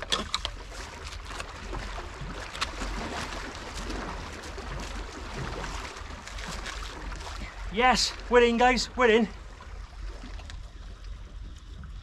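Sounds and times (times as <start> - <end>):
water washing at rocks: 0.0 - 9.3
wind rumble on microphone: 9.3 - 12.0.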